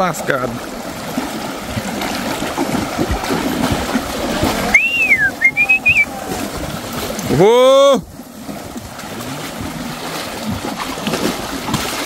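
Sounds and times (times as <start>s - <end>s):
animals wading through water: 0.0s - 12.0s
high whistle: 4.7s - 6.1s.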